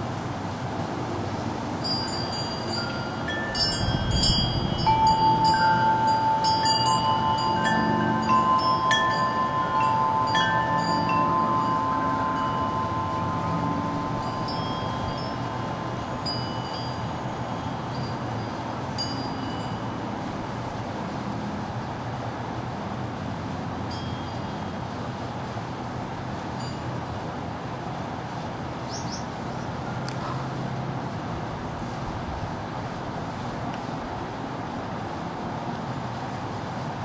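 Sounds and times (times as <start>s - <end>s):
wind chimes ringing: 1.8s - 20.2s, 23.8s - 24.9s, 26.6s - 27.1s.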